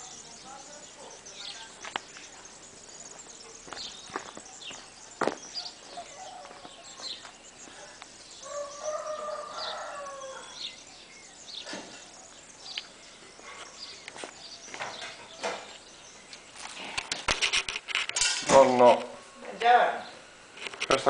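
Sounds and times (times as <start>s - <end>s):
faint high chirps: 0.0s - 16.5s
rooster crowing: 6.0s - 7.2s, 8.4s - 10.8s.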